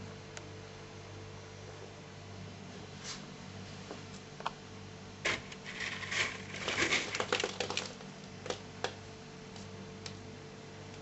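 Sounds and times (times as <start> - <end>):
low electrical hum: 0.0 - 11.0
scraping and rustling: 5.3 - 8.0.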